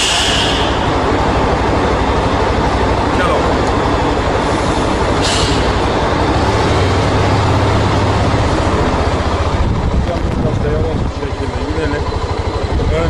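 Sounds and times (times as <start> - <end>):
brief hiss: 0.0 - 0.8, 5.2 - 5.7
motorcycle engine idling: 0.6 - 13.0.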